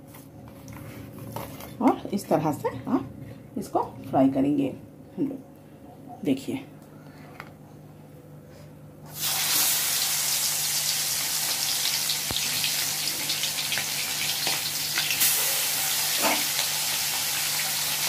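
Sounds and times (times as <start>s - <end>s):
fish sizzling in hot oil: 9.1s - 18.0s.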